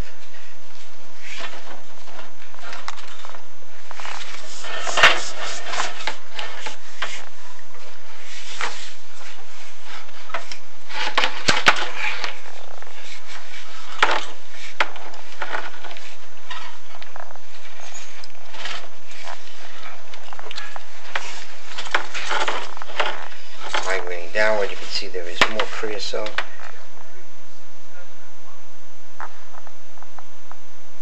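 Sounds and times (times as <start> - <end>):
camera scraping flue walls: 0.0 - 27.1.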